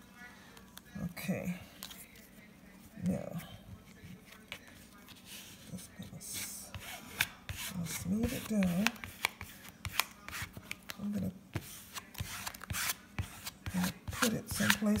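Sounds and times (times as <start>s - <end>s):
plastic card scraping fabric: 6.4s - 15.0s.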